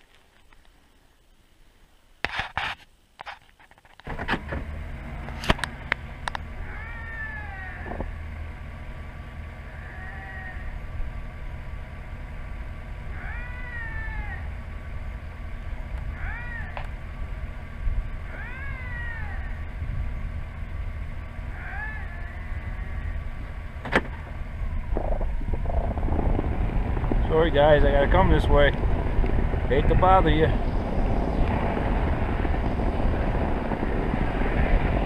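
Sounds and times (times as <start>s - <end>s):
vehicle engine idling: 4.1s - 35.0s
lynx meowing calls: 6.5s - 8.1s, 9.7s - 10.9s, 13.1s - 14.6s, 16.0s - 16.9s, 18.2s - 19.7s, 21.5s - 23.4s.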